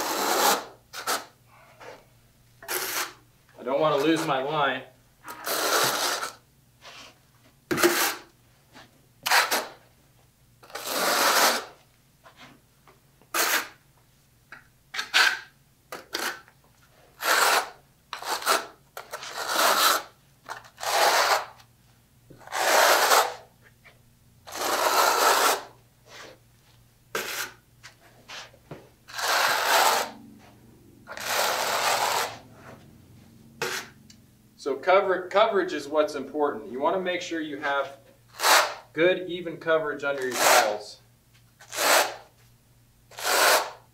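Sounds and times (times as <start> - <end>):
trowel scraping mortar: 0.0 - 1.3, 2.6 - 3.2, 5.3 - 6.4, 7.0 - 8.3, 9.2 - 9.8, 10.6 - 11.7, 13.3 - 13.8, 15.0 - 16.5, 17.2 - 21.6, 22.4 - 23.5, 24.5 - 26.4, 27.2 - 27.6, 29.1 - 30.2, 31.1 - 32.4, 33.6 - 34.0, 38.3 - 38.9, 40.2 - 40.9, 41.6 - 42.3, 43.1 - 43.9.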